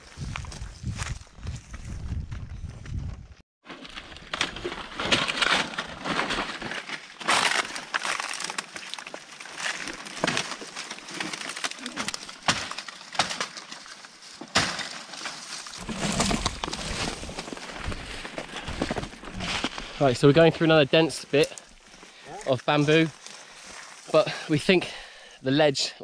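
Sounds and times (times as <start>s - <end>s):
rustling through dry brush: 3.7s - 24.6s
dry twigs snapping: 4.2s - 19.9s.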